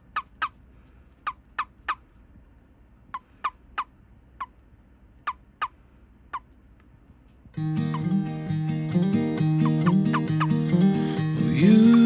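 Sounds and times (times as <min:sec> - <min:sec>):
toad chirping: 0:00.0 - 0:00.6, 0:01.2 - 0:02.1, 0:03.1 - 0:04.6, 0:05.2 - 0:06.5, 0:07.7 - 0:08.4, 0:09.6 - 0:10.8.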